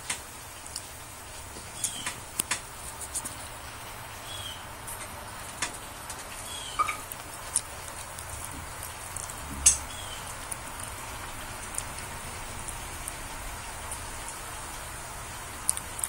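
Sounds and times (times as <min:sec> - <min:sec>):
steady hiss: 0:00.0 - 0:16.0
mouth chewing smacks: 0:06.3 - 0:14.8, 0:15.4 - 0:16.0
pet bird chirps: 0:06.5 - 0:07.1, 0:09.8 - 0:10.3.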